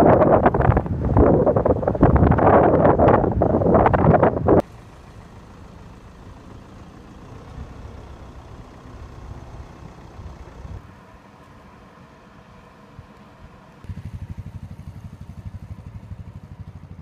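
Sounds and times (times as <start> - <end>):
wind buffeting microphone: 0.0 - 4.6
vehicle low rumble: 0.0 - 17.0.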